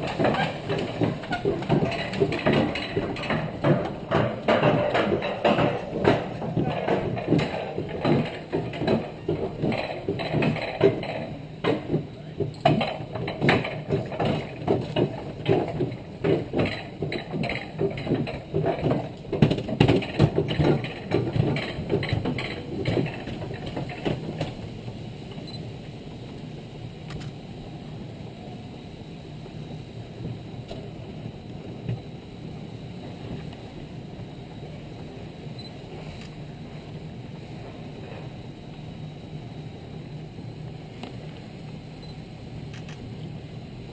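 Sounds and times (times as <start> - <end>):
sled wheels rattling on rails: 0.0 - 25.6.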